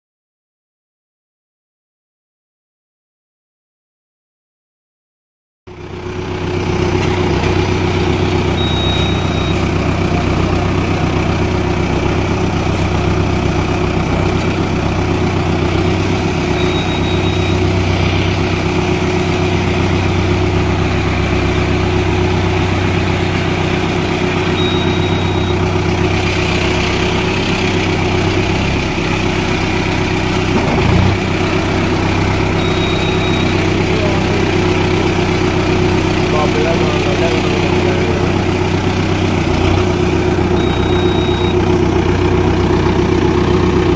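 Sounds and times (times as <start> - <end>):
diesel tractor engine idling: 5.7 - 43.9
short high beep: 8.0 - 9.8, 15.9 - 18.7, 24.0 - 27.2, 32.5 - 34.7, 40.5 - 41.7.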